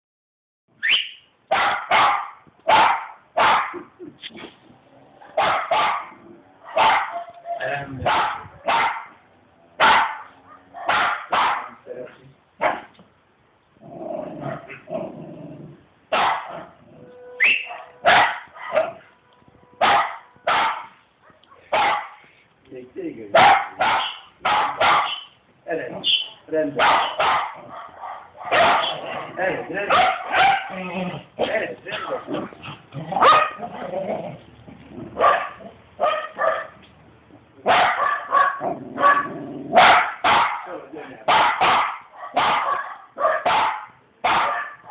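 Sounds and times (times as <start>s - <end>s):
small dog barking: 1.5s - 3.8s, 5.4s - 9.2s, 9.8s - 11.8s, 12.6s - 12.9s, 14.4s - 14.9s, 16.1s - 16.8s, 17.4s - 19.1s, 19.8s - 22.2s, 23.3s - 25.4s, 26.0s - 30.8s, 33.1s - 33.9s, 35.2s - 36.8s, 37.6s - 40.7s, 41.3s - 44.9s.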